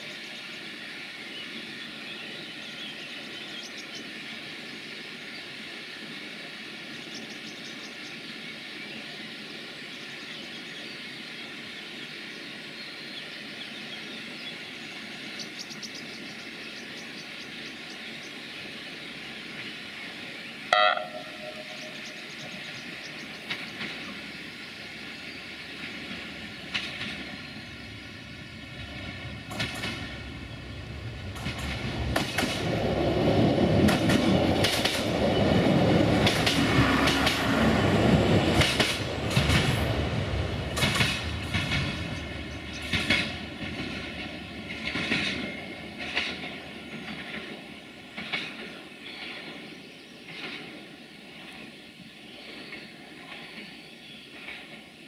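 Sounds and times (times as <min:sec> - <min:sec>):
diesel train engine passing: 0:00.0 - 0:55.0
train horn blast: 0:20.7 - 0:22.0
wheels clicking over rail joints: 0:22.4 - 0:24.3, 0:25.8 - 0:27.5, 0:29.0 - 0:30.4, 0:31.0 - 0:33.0, 0:33.7 - 0:37.7, 0:38.4 - 0:49.5.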